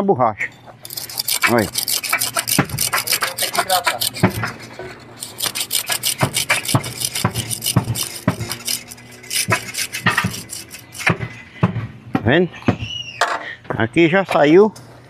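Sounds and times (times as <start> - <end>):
blade squeaking on rubber: 0.4 - 11.5
knife sawing through rubber: 0.8 - 11.3.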